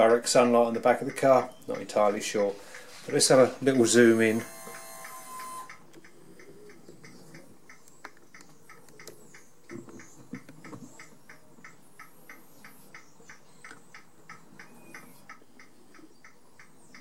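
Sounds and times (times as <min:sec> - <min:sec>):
hazard light flasher ticking: 0:03.7 - 0:17.0.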